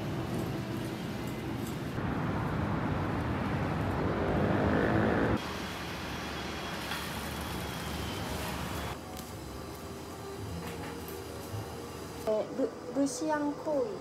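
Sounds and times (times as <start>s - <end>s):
street traffic noise: 0.0s - 12.4s
car engine and tyres passing: 2.0s - 5.5s.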